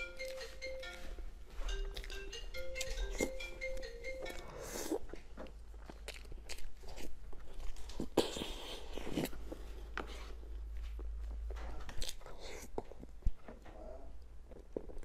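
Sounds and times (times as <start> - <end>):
wet chewing and slurping: 1.7 - 3.4, 4.2 - 10.4.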